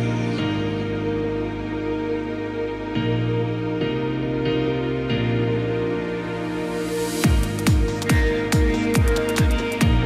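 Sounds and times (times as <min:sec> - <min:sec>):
held synth chord: 0:00.0 - 0:10.0
deep kick drum: 0:07.2 - 0:10.0.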